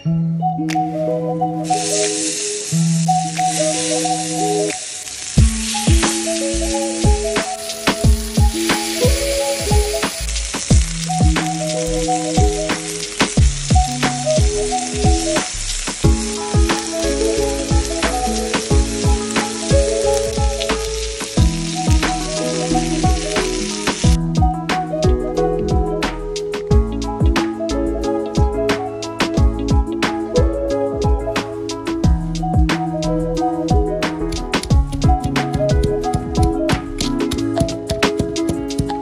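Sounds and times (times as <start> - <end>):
background music with plucked beat: 0.0 - 39.0
meat sizzling on grill pan: 1.7 - 24.2.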